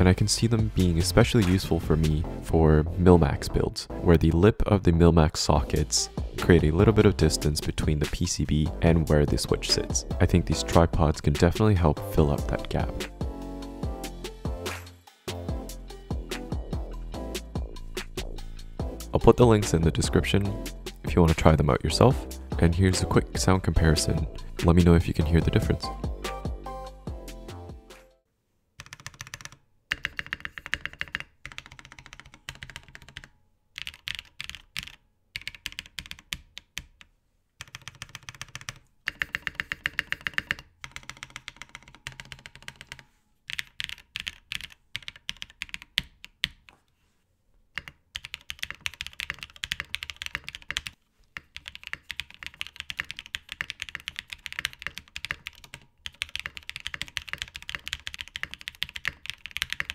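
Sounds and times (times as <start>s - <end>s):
mechanical keyboard keystrokes clacking: 47.8s - 50.9s, 51.6s - 59.9s.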